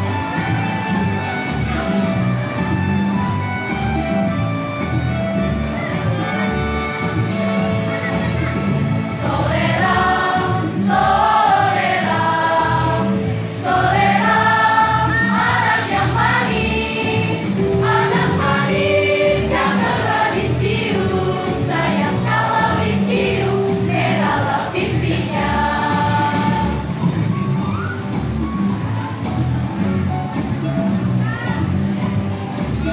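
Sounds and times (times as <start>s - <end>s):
electronic keyboard accompaniment: 0.0s - 32.9s
children's choir singing: 9.0s - 27.3s.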